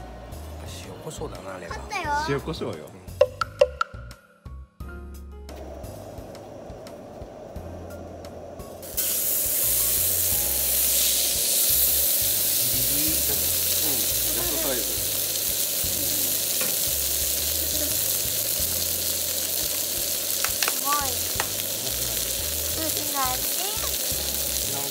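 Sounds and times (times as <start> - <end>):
meat sizzling on hot plate: 8.8 - 24.9.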